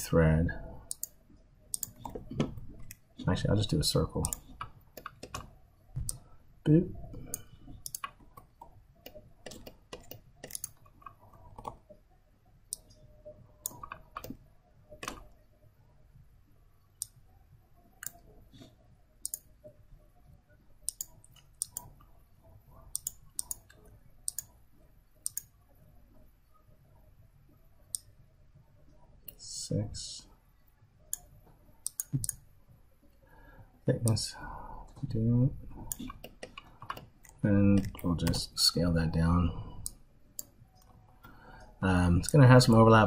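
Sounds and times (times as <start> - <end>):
computer mouse clicking: 0.9 - 3.0, 4.2 - 6.2, 7.1 - 11.9, 13.6 - 15.4, 18.0 - 19.5, 20.8 - 22.1, 22.8 - 24.5, 25.2 - 25.5, 31.1 - 32.4, 35.8 - 38.4.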